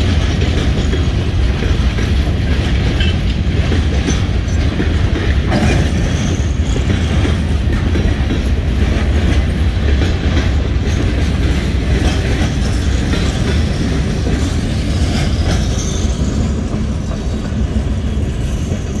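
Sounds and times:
freight train wheels rumbling: 0.0 - 19.0
wheels clicking over rail joints: 0.0 - 19.0
high wheel squeals: 15.2 - 16.6.

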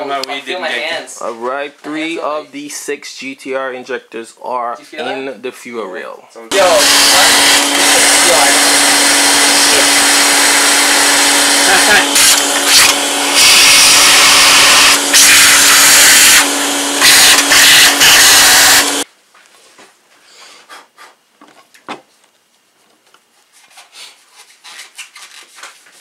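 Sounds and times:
small electric motor humming: 6.5 - 19.0.

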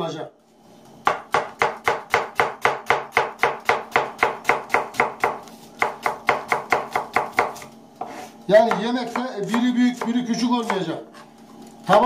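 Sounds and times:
knife chopping onion on board: 1.0 - 11.3.

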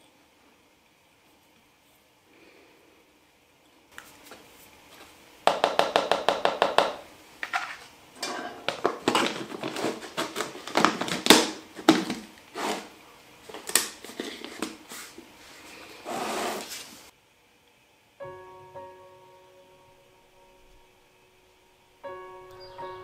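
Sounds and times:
small hard objects rattling: 5.5 - 14.8
small objects knocking and clattering: 5.5 - 14.8.

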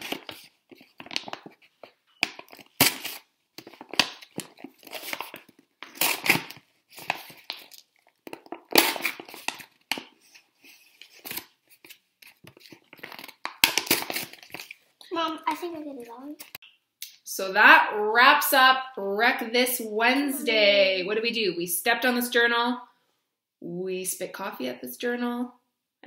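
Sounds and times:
paper tearing and crinkling: 0.0 - 15.0.

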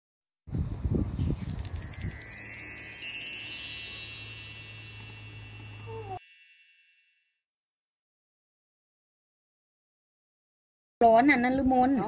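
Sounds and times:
chimes ringing: 1.4 - 7.3.

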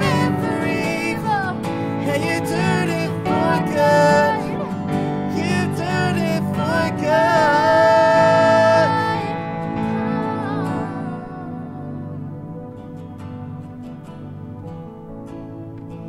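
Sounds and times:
woman and man singing: 0.0 - 11.8
keyboard: 0.0 - 16.0
strummed acoustic guitar: 0.0 - 16.0.

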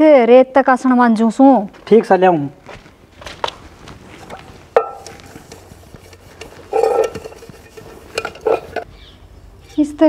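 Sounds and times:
steel pots clanking: 4.2 - 8.9.

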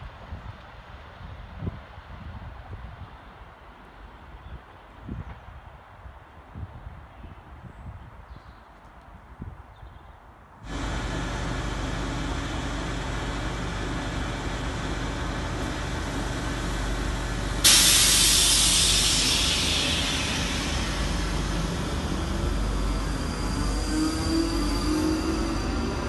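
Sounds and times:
train equipment humming: 10.6 - 26.0
air brakes hissing: 15.6 - 26.0.

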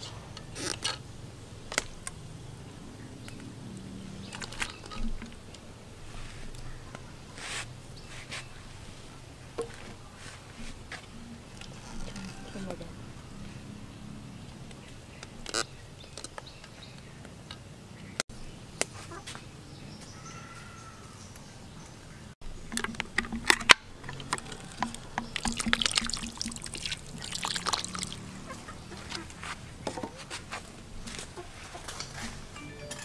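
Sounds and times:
small clicks and knocks: 22.7 - 25.8
water pouring in cooking pot: 24.1 - 28.4.

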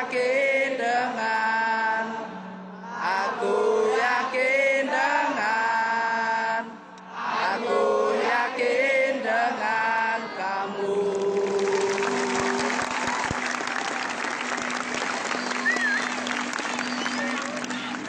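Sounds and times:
crowd chanting: 0.0 - 13.2.

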